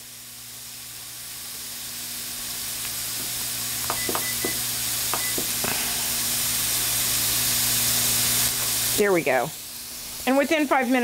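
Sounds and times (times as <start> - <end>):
vegetables sizzling in oil: 0.0 - 11.0
kitchen timer beeps: 3.8 - 5.6.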